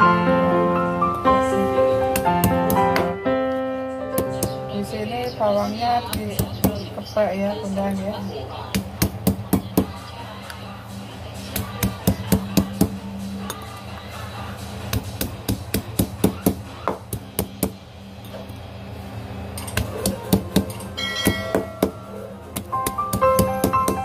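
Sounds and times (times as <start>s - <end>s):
piano music: 0.0s - 6.0s, 20.4s - 24.0s
stone pestle knocking on wood: 20.3s - 22.0s, 22.6s - 24.0s.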